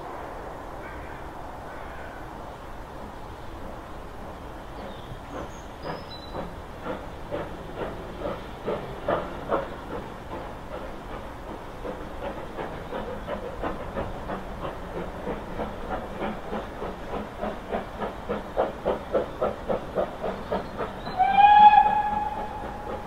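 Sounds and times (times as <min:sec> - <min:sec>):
steady steam hiss: 0:00.0 - 0:23.0
steam locomotive exhaust beats: 0:00.0 - 0:23.0
steam whistle blast: 0:21.1 - 0:22.6.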